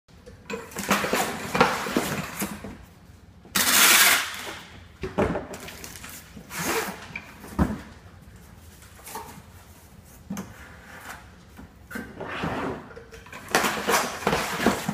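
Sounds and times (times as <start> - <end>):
packing tape pulled off dispenser: 3.6 - 4.6.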